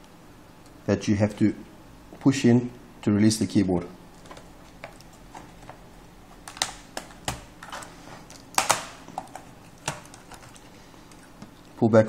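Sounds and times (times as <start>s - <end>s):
plastic keyboard clicks and clatter: 6.4s - 10.6s.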